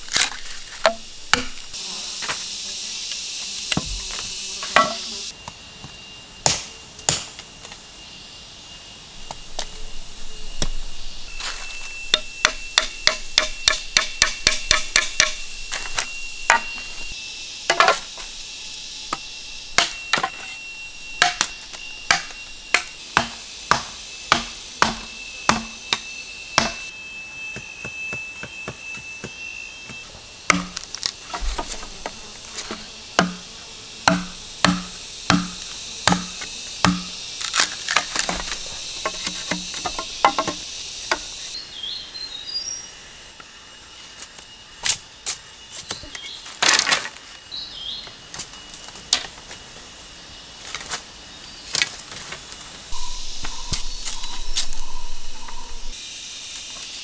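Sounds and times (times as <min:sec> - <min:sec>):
machete chopping bamboo: 0:00.0 - 0:01.7, 0:06.4 - 0:07.4, 0:12.1 - 0:15.8, 0:17.7 - 0:18.1, 0:19.8 - 0:20.4, 0:21.2 - 0:26.9, 0:30.5 - 0:32.2, 0:33.2 - 0:41.3
high insect drone: 0:00.0 - 0:57.0.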